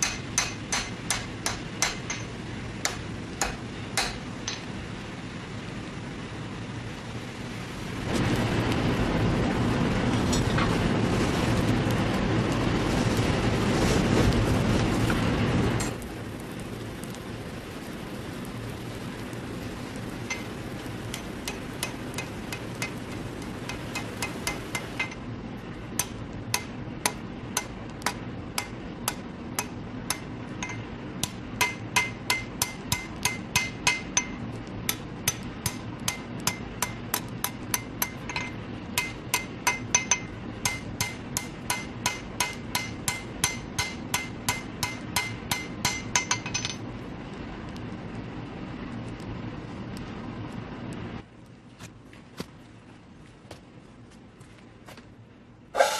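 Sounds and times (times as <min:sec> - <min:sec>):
hammer striking steel on anvil: 0:00.0 - 0:04.7, 0:20.3 - 0:20.5, 0:21.1 - 0:25.2, 0:26.0 - 0:46.8
low background rush: 0:00.0 - 0:55.9.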